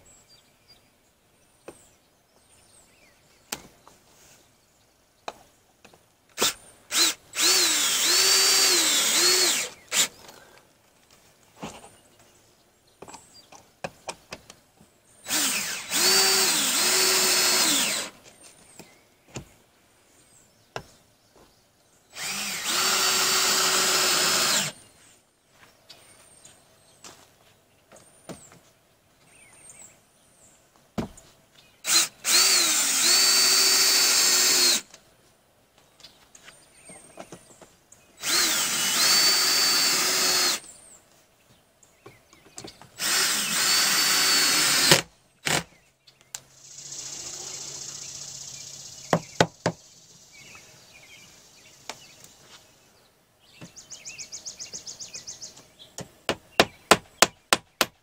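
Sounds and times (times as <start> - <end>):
cordless drill driving screws: 6.4 - 10.4, 15.2 - 18.2, 22.2 - 24.8, 31.8 - 34.9, 38.2 - 40.7, 43.0 - 45.7.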